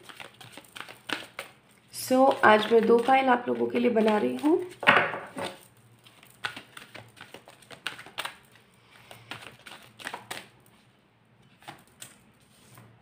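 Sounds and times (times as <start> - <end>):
cards clicking and tapping: 0.0 - 1.6, 2.3 - 8.5, 9.3 - 10.5.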